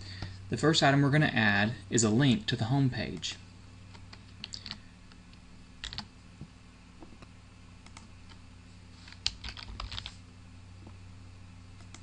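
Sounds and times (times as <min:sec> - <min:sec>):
low electrical hum: 0:00.0 - 0:12.0
keyboard keystrokes: 0:09.1 - 0:10.2.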